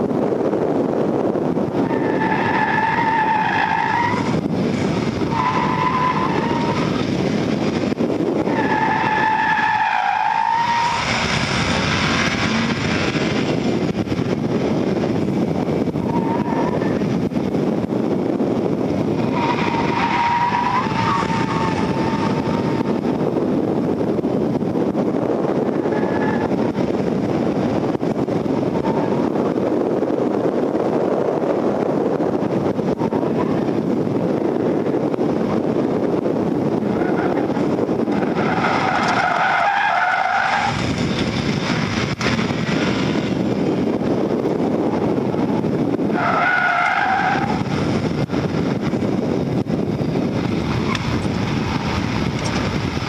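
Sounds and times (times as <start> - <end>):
car engine and road noise: 0.0 - 53.0
tyres squealing: 19.3 - 22.9, 37.0 - 40.9.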